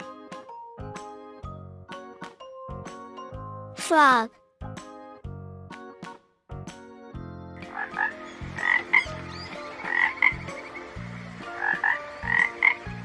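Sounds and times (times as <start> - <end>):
frogs croaking: 7.6 - 13.0.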